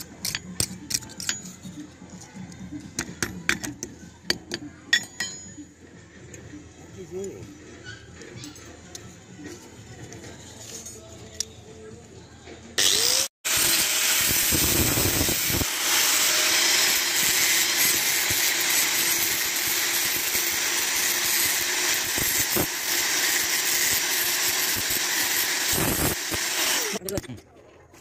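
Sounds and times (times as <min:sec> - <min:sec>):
angle grinder grinding metal: 0:12.8 - 0:27.2.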